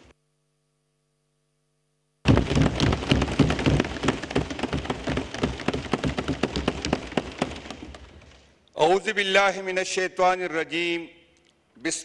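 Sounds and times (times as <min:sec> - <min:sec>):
crowd applauding: 0:02.3 - 0:08.0.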